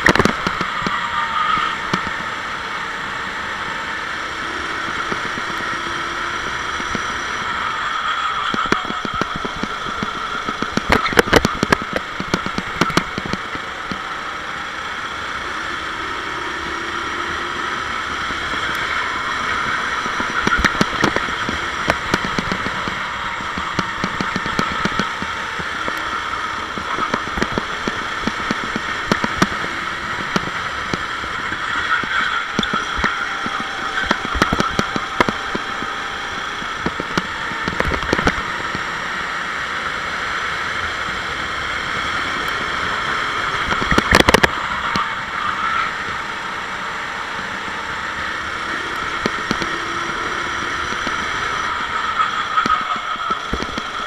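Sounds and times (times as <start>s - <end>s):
kart engine racing: 0.0s - 54.0s.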